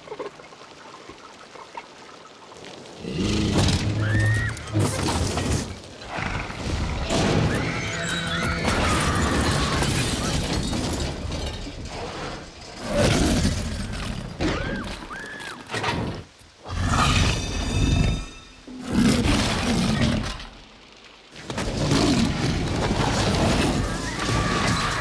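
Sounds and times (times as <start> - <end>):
rain: 0.0 - 25.0
high screams: 4.0 - 4.8, 7.4 - 9.9, 14.5 - 15.7, 23.8 - 25.0
crashing: 4.7 - 15.0.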